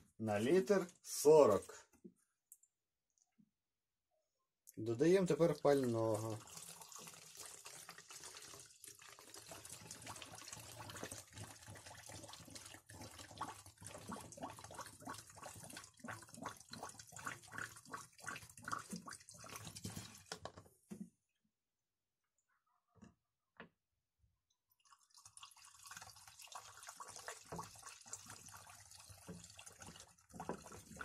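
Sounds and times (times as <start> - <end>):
fuel pouring through a funnel: 4.8 - 20.6, 24.7 - 31.0.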